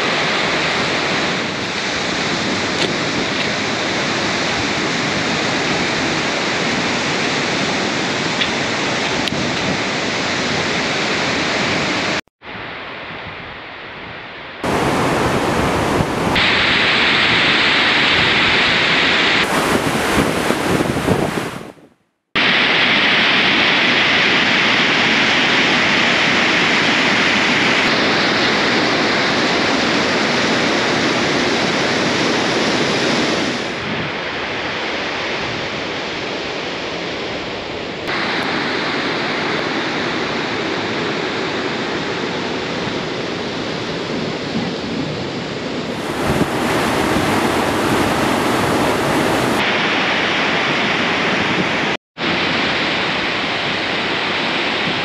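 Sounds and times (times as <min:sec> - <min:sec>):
water rushing over boulders: 0:00.0 - 0:12.2, 0:14.6 - 0:21.8, 0:38.1 - 0:43.2, 0:45.8 - 0:55.0.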